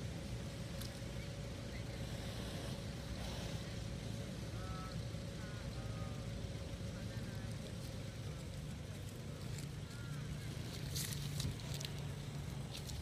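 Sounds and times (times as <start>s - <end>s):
faint hum: 0.0s - 13.0s.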